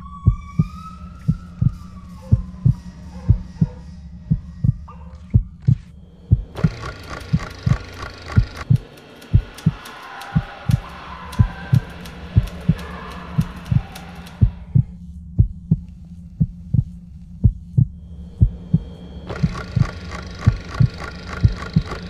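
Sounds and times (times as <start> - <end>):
falling siren-like tone: 0.0 - 5.1
heartbeat-like low thumps: 0.0 - 9.8, 10.4 - 22.0
steady low drone: 0.0 - 22.0.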